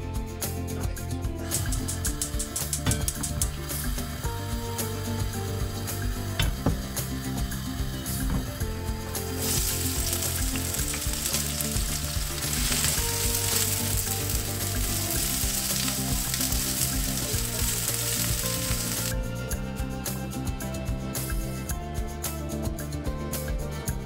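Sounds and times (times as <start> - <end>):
onion sizzling in oil: 1.4 - 19.2.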